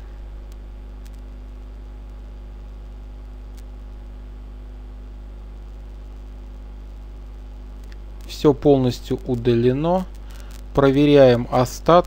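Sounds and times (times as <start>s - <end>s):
low electrical hum: 0.0s - 12.0s
faint click: 0.5s - 1.3s, 3.5s - 3.7s.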